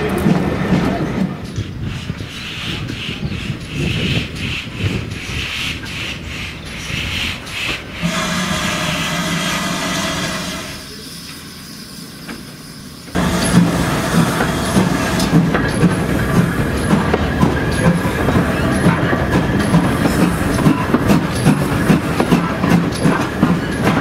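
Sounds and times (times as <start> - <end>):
steam locomotive exhaust beats: 0.0 - 24.0
wheels running over rails: 8.0 - 10.9, 13.1 - 24.0.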